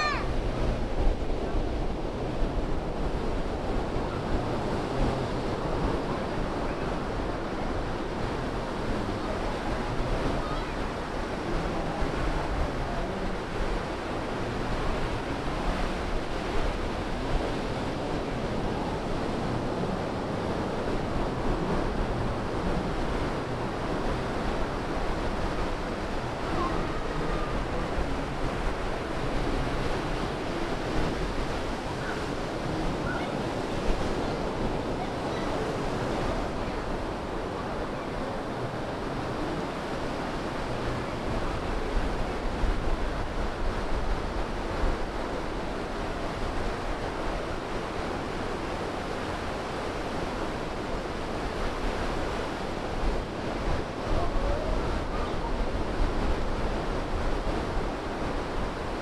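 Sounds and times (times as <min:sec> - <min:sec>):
surf breaking on sand: 0:00.0 - 0:59.0
wind rumble on microphone: 0:00.0 - 0:59.0.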